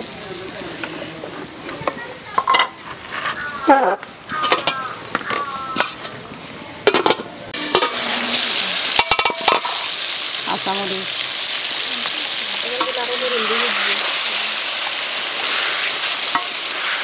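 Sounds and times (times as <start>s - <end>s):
curry sizzling and bubbling: 0.0s - 17.0s.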